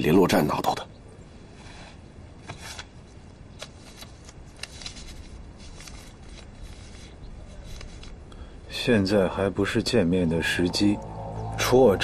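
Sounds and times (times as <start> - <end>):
paper note crackling: 1.6 - 8.3.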